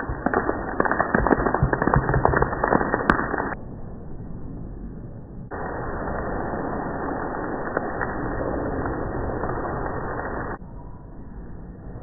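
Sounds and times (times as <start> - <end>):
heavy rain splashing into water: 0.0 - 3.6.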